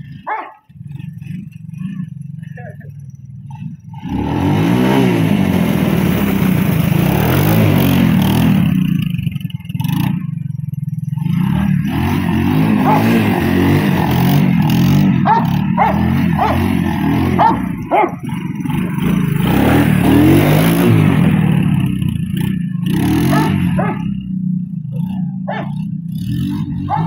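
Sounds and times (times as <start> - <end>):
atv engine revving: 0.0 - 27.0
dog barking: 0.2 - 0.7, 12.8 - 13.2, 15.2 - 16.7, 17.3 - 18.3, 23.3 - 24.1, 25.0 - 25.8.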